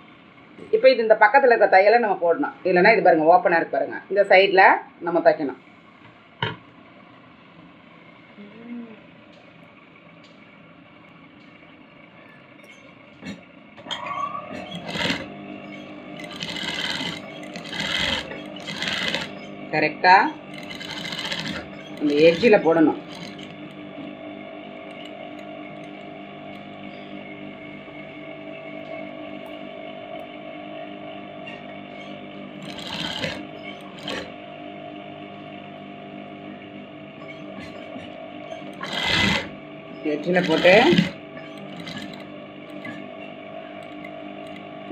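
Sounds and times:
faint hum: 0.0s - 44.9s
sewing machine stitching: 14.5s - 19.5s, 20.2s - 23.8s, 31.9s - 34.3s, 38.5s - 39.6s, 40.2s - 43.0s.

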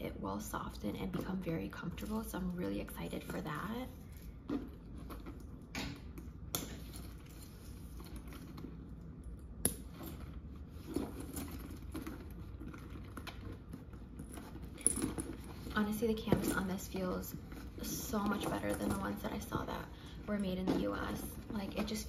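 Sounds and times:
leather rustling: 9.8s - 19.3s
metal clasps clicking and jangling: 14.2s - 15.8s.

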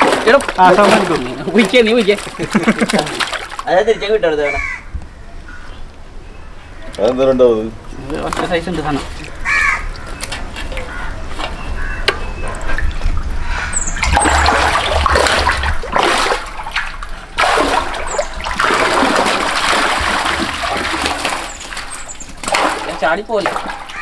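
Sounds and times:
water splashing in fish tank: 0.0s - 3.7s, 12.4s - 24.0s.

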